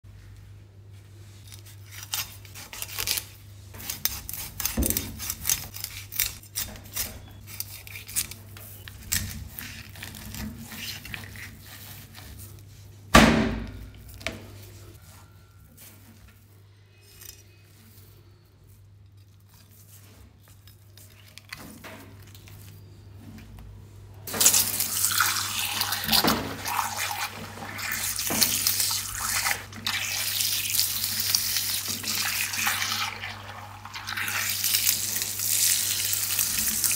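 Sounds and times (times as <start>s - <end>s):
knife scraping fish skin: 1.5s - 12.7s, 24.4s - 33.4s
water jet hissing and spattering: 24.3s - 36.9s.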